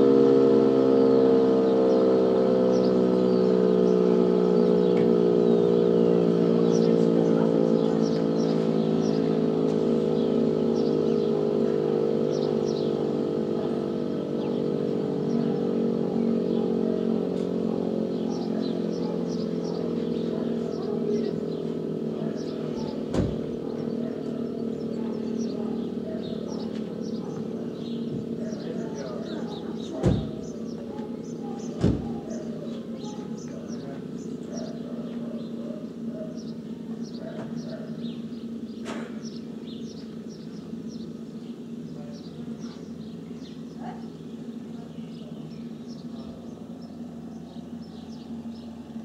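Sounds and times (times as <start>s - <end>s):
rotor siren winding down: 0.0s - 38.8s
birds chirping: 0.0s - 49.0s
thump: 23.1s - 23.4s, 30.0s - 30.4s, 31.8s - 32.1s.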